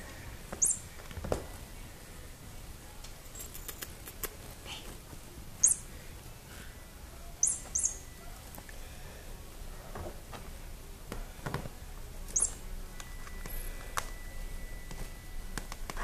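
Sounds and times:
kitten chirp: 0.6 - 0.8, 5.6 - 5.9, 7.4 - 8.1, 12.3 - 12.7.

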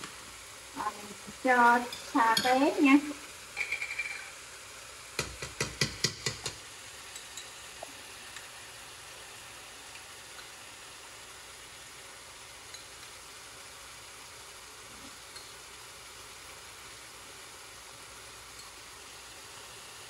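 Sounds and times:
pot sizzling faintly: 0.0 - 20.0
spoon clinking against pot: 3.6 - 4.3, 15.3 - 15.5.

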